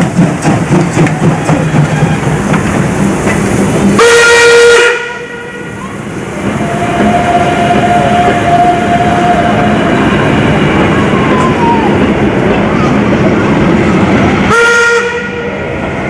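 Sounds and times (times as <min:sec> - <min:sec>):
steam hissing: 0:00.0 - 0:14.6
steam locomotive whistle: 0:04.0 - 0:11.9, 0:14.5 - 0:15.6.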